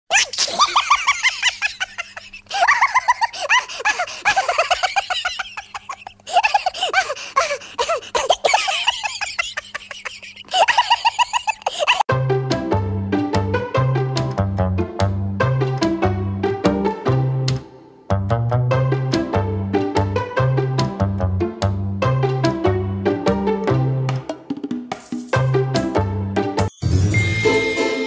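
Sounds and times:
high-pitched giggling: 0:00.1 - 0:12.1
music: 0:12.1 - 0:28.0.

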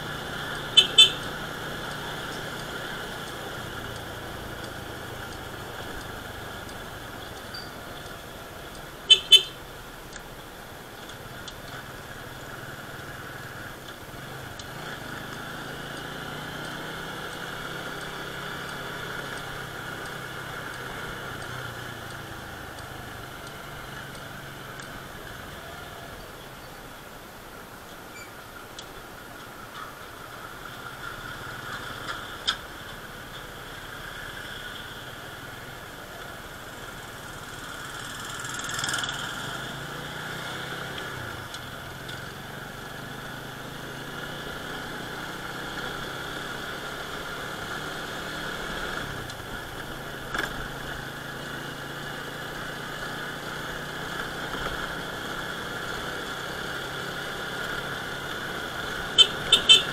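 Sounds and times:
motorcycle engine running: 0:00.0 - 0:09.7, 0:33.0 - 0:59.9.

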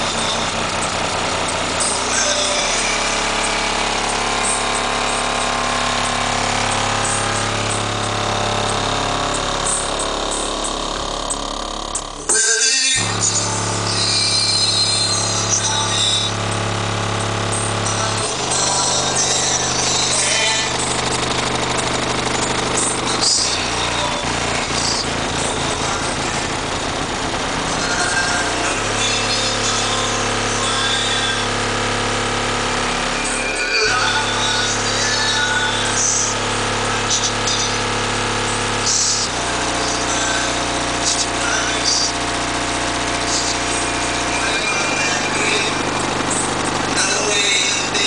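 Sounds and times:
deep subwoofer bass with buzz: 0:00.0 - 0:48.0.

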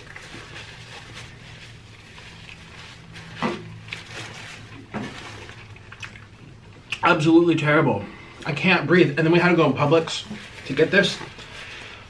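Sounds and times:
people chewing food: 0:00.0 - 0:07.0.

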